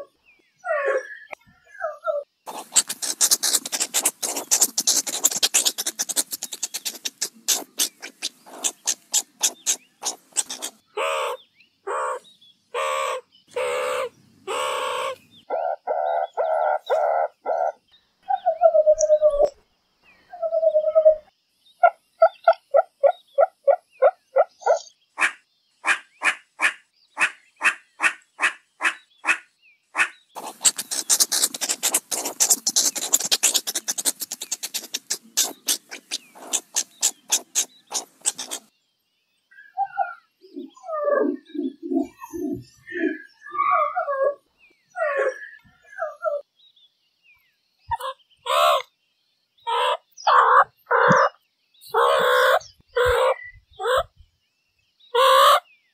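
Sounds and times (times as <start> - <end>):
meerkat chirps and clicks: 2.1 - 12.2, 18.4 - 19.6, 30.0 - 38.7, 47.9 - 48.9, 49.7 - 54.1
meerkat harsh calls: 2.5 - 17.8, 24.4 - 38.7, 47.9 - 48.8, 49.7 - 51.3, 51.9 - 54.1, 55.2 - 55.6.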